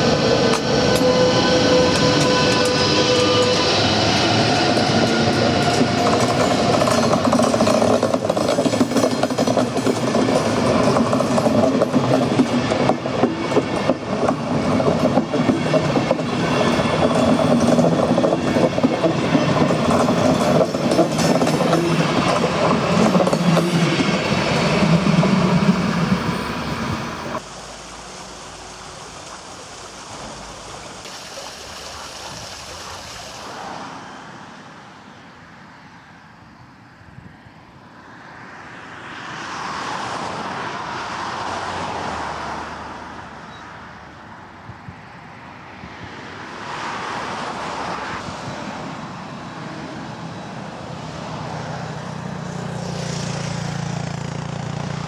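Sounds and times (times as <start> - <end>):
electric train passing: 0.0 - 55.0
passenger coaches rolling on rails: 0.0 - 55.0.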